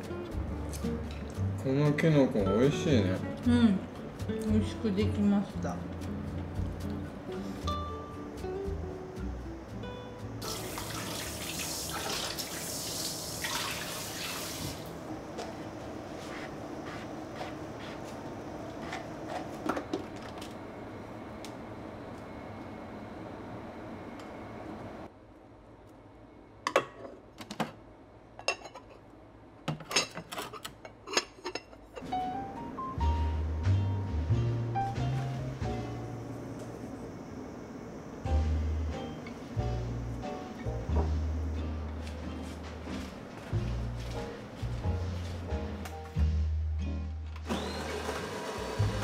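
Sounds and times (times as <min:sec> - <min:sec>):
soft music: 0:00.0 - 0:12.3, 0:32.0 - 0:37.1, 0:38.1 - 0:49.0
dishes being rinsed: 0:10.4 - 0:14.8.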